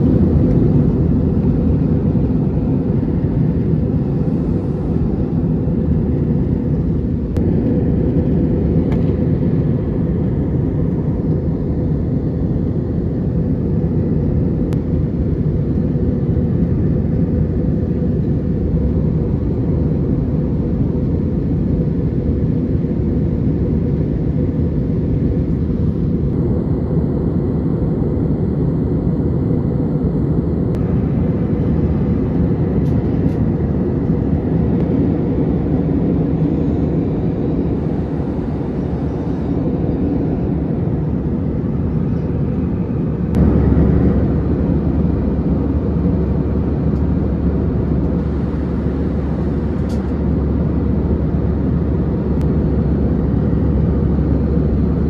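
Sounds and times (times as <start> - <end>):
air rushing in cabin: 0.0 - 55.0
jet engines rumbling: 0.0 - 55.0.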